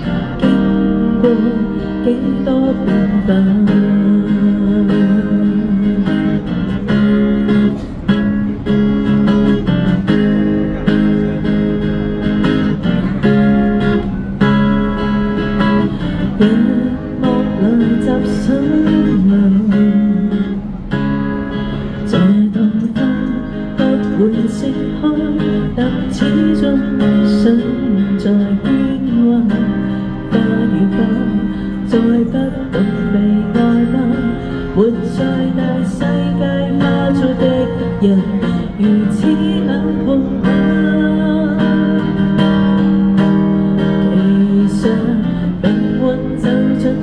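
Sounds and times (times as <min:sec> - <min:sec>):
acoustic guitar strummed and picked: 0:00.0 - 0:47.0.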